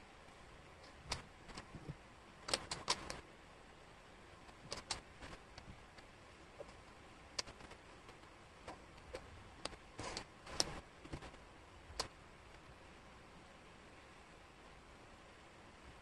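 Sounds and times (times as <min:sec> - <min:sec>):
wooden puzzle pieces clicking: 0:02.5 - 0:03.2, 0:04.7 - 0:05.1
sliding rustle: 0:04.4 - 0:12.2.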